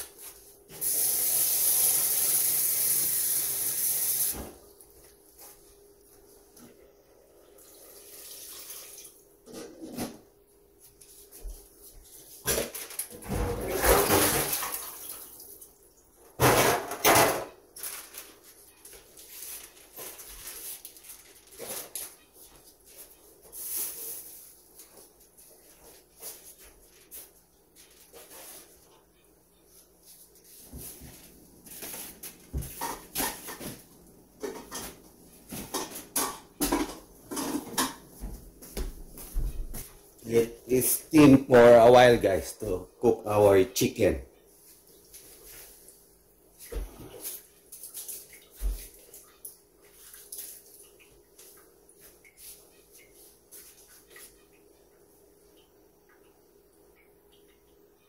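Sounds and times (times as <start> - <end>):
kitchenware clinking and knocking: 16.4 - 17.6, 35.6 - 38.1.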